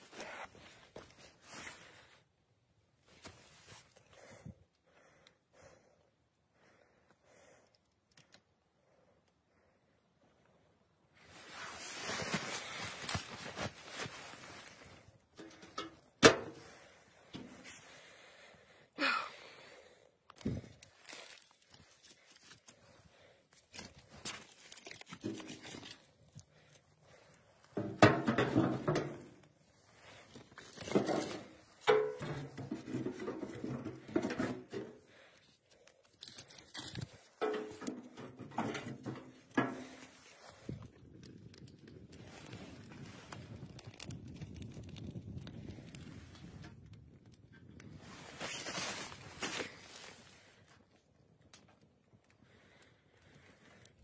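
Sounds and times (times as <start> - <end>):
rustling and crinkling groundsheet: 0.0 - 4.4, 11.1 - 54.0
firewood knocking and clattering: 15.3 - 17.7, 27.6 - 29.5, 30.7 - 35.2, 36.9 - 40.2.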